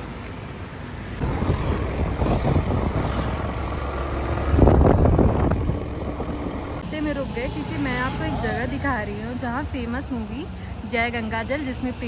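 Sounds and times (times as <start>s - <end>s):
road noise: 0.0s - 12.0s
road traffic: 0.0s - 12.0s
wind rushing on microphone: 1.2s - 6.8s
motorbike engine: 1.2s - 9.4s.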